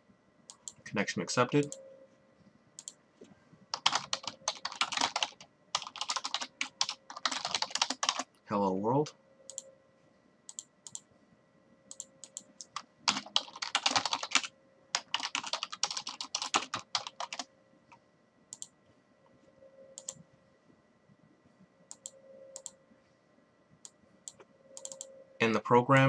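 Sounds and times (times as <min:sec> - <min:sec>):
typing on keyboard: 0:03.7 - 0:08.3, 0:11.9 - 0:17.5, 0:20.0 - 0:20.2, 0:24.3 - 0:25.1.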